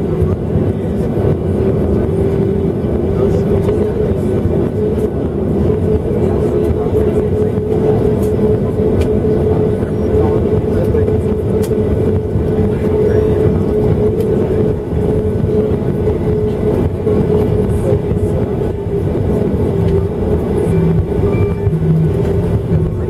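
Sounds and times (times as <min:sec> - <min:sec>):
jet engines at low power: 0:00.0 - 0:23.0
landing gear rumble: 0:18.6 - 0:23.0.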